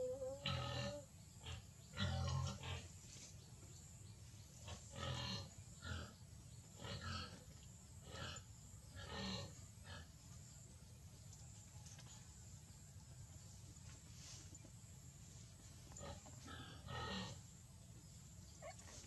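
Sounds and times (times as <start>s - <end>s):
baby monkey grunting: 0.0s - 2.9s.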